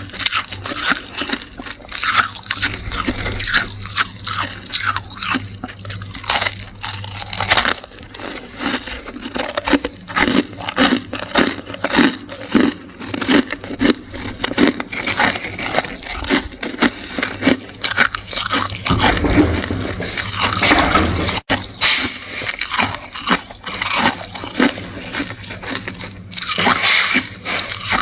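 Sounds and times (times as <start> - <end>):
frost being chewed crunching: 4.3 - 19.0, 22.4 - 28.0.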